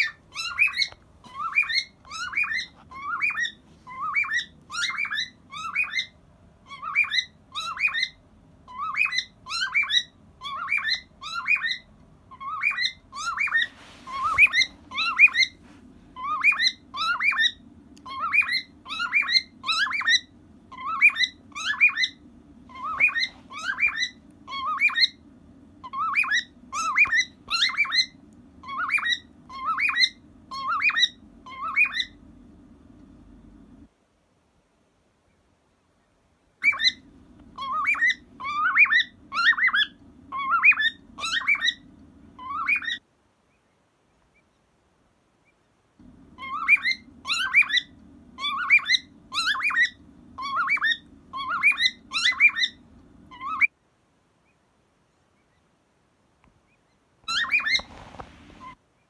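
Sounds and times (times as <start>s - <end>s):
cockatiel whistling: 0.0s - 15.6s, 16.2s - 25.2s, 25.8s - 32.2s, 36.6s - 43.0s, 46.4s - 53.7s, 57.2s - 58.0s.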